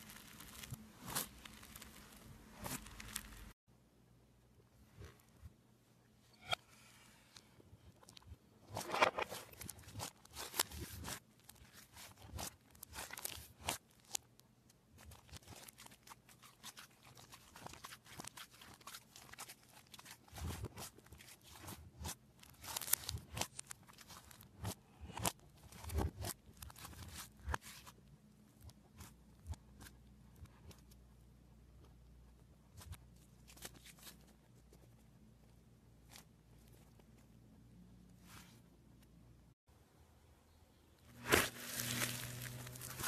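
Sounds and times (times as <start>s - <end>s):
slime squishing and popping: 0.0s - 3.5s.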